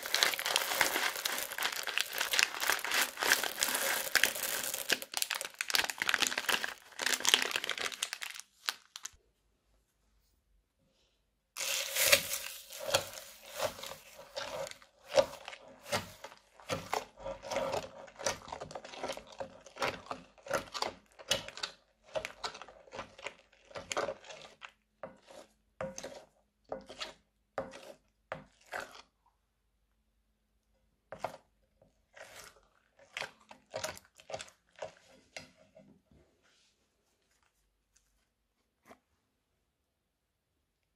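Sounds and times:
plastic piping bag crinkling: 0:00.0 - 0:09.2, 0:11.6 - 0:24.7
spatula stirring beaded slime: 0:00.0 - 0:09.2, 0:11.6 - 0:39.6.

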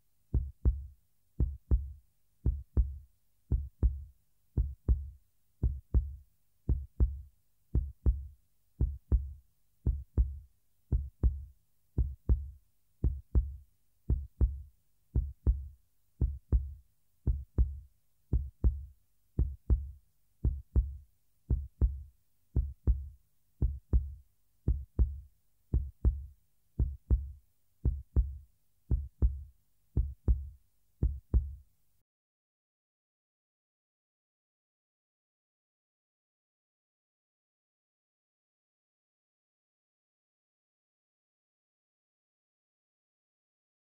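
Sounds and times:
heartbeat thumps: 0:00.4 - 0:07.2, 0:07.8 - 0:31.6.

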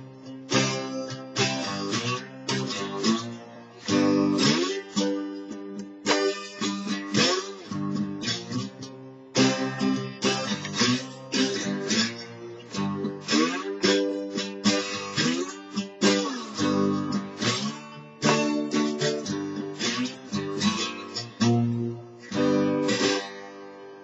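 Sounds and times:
slide acoustic guitar chords: 0:00.0 - 0:24.0.

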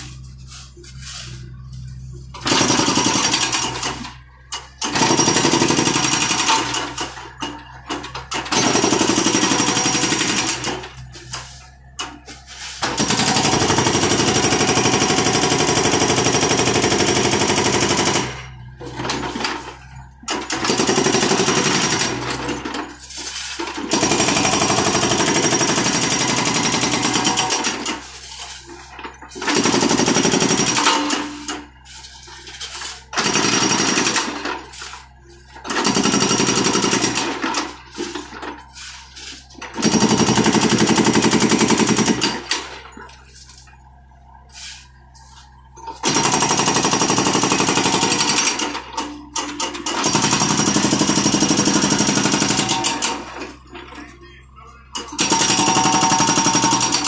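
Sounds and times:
excavator engine droning: 0:00.0 - 0:46.8
hydraulic breaker hammering concrete: 0:02.3 - 0:04.1, 0:04.8 - 0:11.1, 0:12.8 - 0:28.0, 0:28.9 - 0:31.6, 0:32.8 - 0:34.8, 0:46.0 - 0:53.5, 0:55.0 - 0:57.0.

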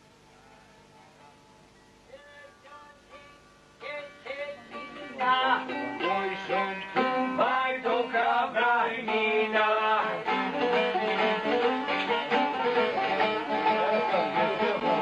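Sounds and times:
men singing: 0:02.2 - 0:11.8, 0:13.4 - 0:15.0
plucked string instrument: 0:03.1 - 0:15.0.

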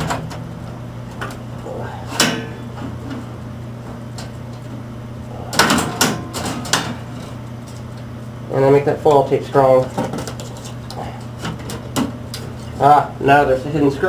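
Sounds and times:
sheet metal clanking and scraping: 0:01.9 - 0:03.3, 0:05.4 - 0:07.9.

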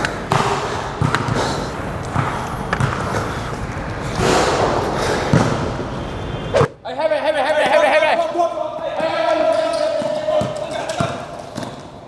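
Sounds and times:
basketballs bouncing: 0:00.0 - 0:05.9, 0:08.9 - 0:12.0.

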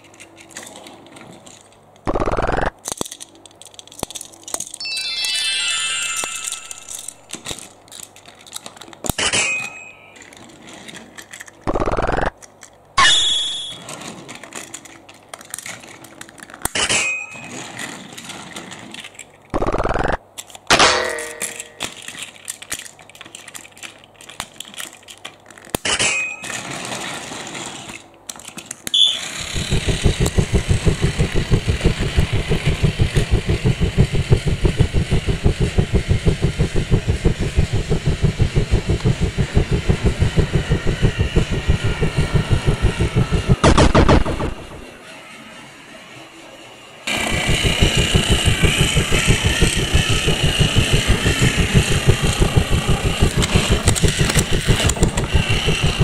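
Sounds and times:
toy train clatters and knocks: 0:00.0 - 0:02.1, 0:02.7 - 0:04.9, 0:06.2 - 0:32.2
toy train motor clattering: 0:00.0 - 0:04.9, 0:06.0 - 0:09.2, 0:10.2 - 0:19.5, 0:21.4 - 0:43.5, 0:45.0 - 0:56.0
bell-like dings: 0:04.8 - 0:07.0.

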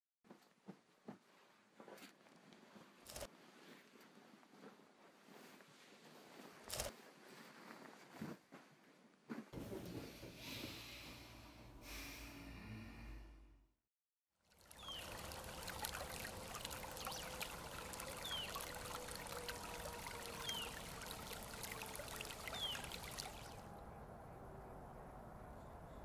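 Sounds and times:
shallow water running in channel: 0:14.4 - 0:23.8
high falling chirp: 0:22.2 - 0:23.5.

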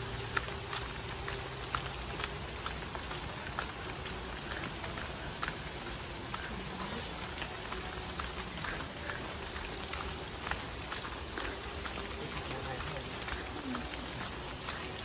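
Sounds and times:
rain hiss: 0:00.0 - 0:15.0
water drops ticking: 0:00.0 - 0:15.0.

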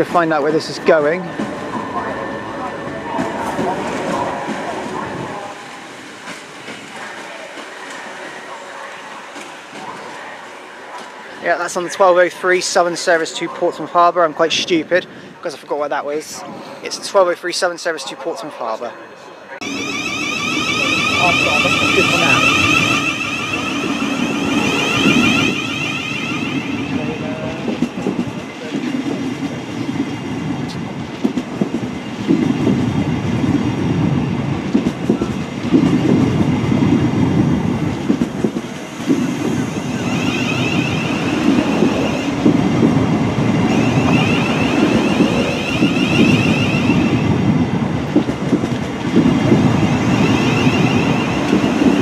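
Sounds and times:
electric train rumble and wheel clatter: 0:00.0 - 0:14.5, 0:19.6 - 0:52.0
high whine: 0:19.6 - 0:28.0, 0:43.6 - 0:47.4, 0:49.9 - 0:52.0.

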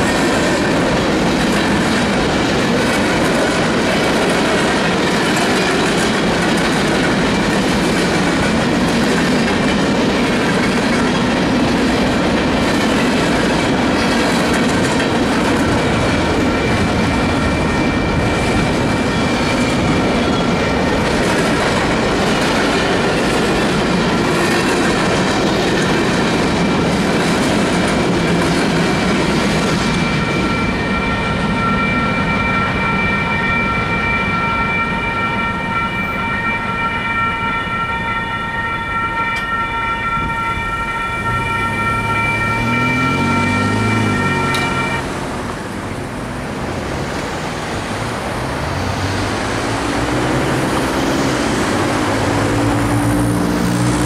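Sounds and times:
train wheels clattering: 0:00.0 - 0:31.9
crossing bell ringing: 0:00.0 - 0:54.0.

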